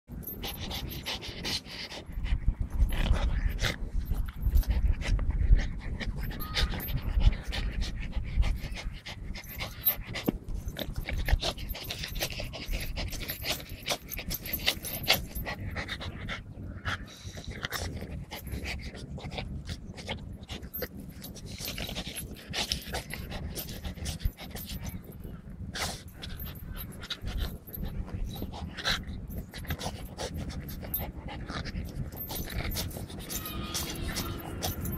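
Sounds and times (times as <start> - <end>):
dog panting: 0.1 - 34.9
heavy low rumble: 24.2 - 34.9.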